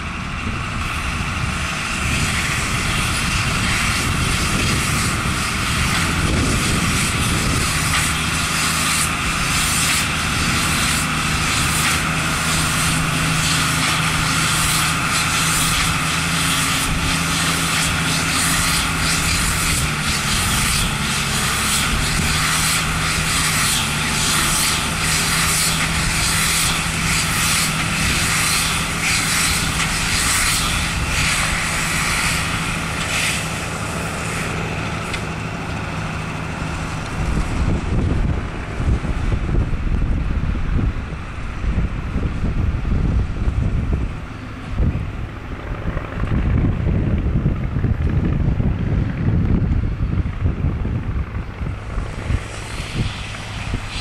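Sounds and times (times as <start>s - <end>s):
tractor engine running under load: 0.0s - 54.0s
machinery clattering: 0.9s - 39.3s.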